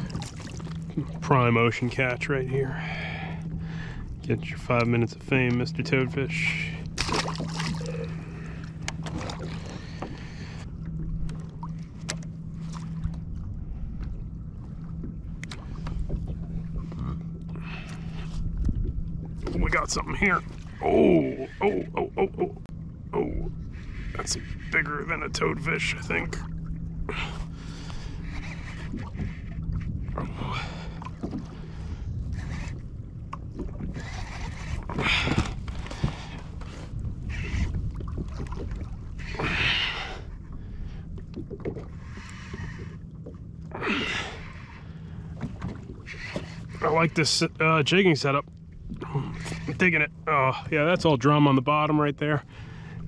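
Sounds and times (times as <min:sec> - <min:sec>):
water washing against kayak hull: 0:00.0 - 0:02.1, 0:06.4 - 0:20.8, 0:25.9 - 0:50.1
low steady hum: 0:00.0 - 0:53.0
wind on microphone: 0:27.8 - 0:40.8.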